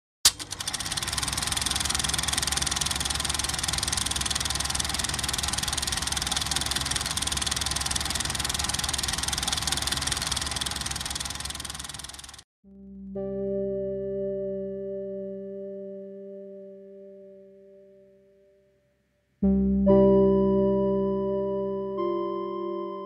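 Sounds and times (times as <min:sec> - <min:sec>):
film projector clattering: 0:00.3 - 0:12.4.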